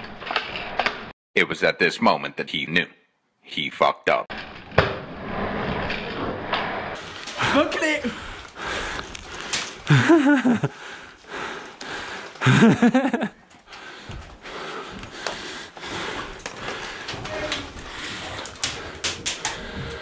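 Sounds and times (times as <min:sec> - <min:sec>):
man laughing or exclaiming: 0:07.4 - 0:08.2, 0:09.9 - 0:10.8, 0:12.4 - 0:13.3.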